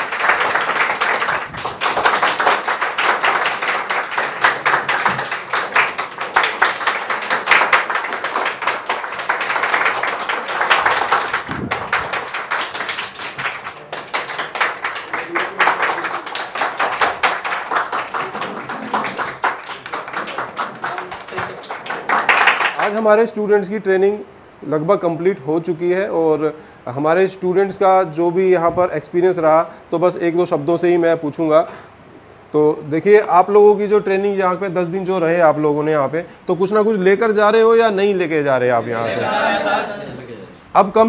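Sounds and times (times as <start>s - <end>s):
people clapping: 0.0s - 23.2s, 39.0s - 40.2s.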